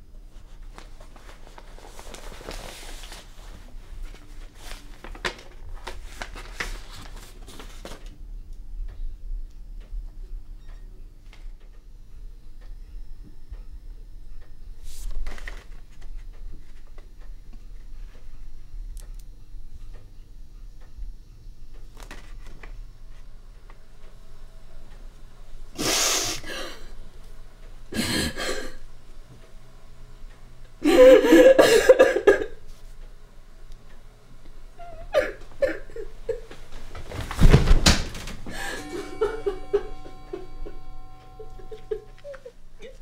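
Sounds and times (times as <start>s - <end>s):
music: 0.4s - 30.8s, 38.4s - 43.0s
woman sobbing: 25.8s - 26.9s, 27.9s - 28.8s, 30.8s - 32.6s, 34.8s - 36.6s, 38.5s - 43.0s.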